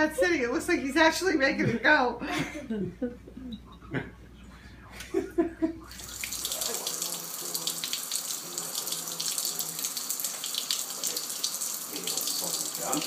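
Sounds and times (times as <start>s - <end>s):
faucet water splashing into sink: 5.9s - 13.0s.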